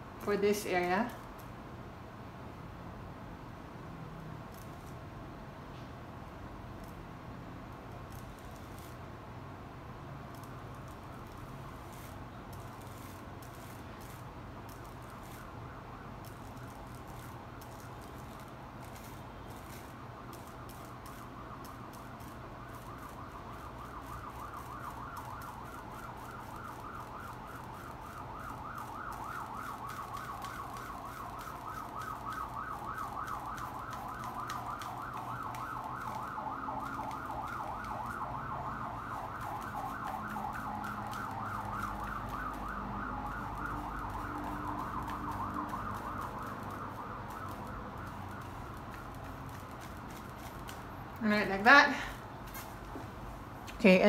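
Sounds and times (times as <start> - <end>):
siren wailing up and down: 10.3 - 52.1.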